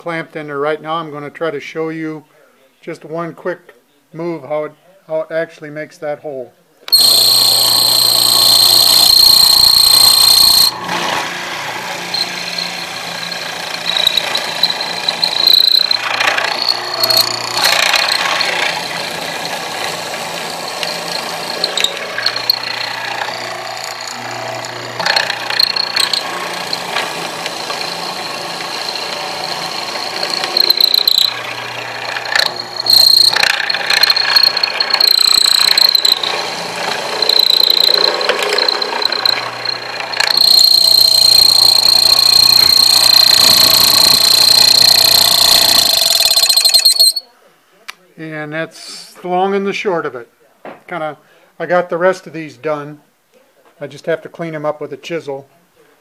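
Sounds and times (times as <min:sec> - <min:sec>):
bit grinding into wood: 0:06.9 - 0:47.2
mortiser motor whine: 0:06.9 - 0:47.2.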